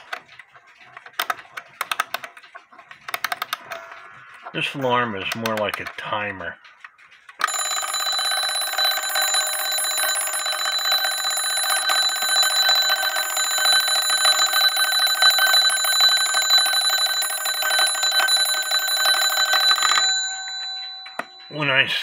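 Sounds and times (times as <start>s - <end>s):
alarm clock bell ringing: 7.4s - 22.0s.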